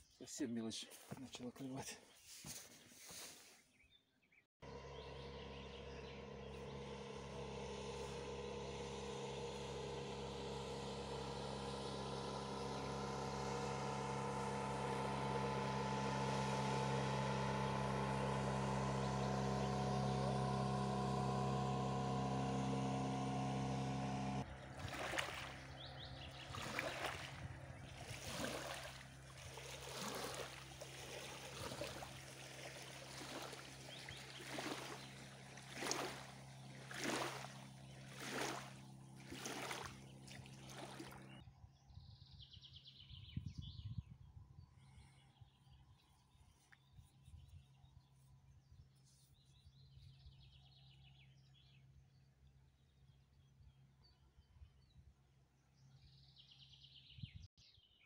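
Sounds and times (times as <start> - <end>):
motorboat engine running: 4.6 - 53.9
small waves lapping: 24.0 - 41.4.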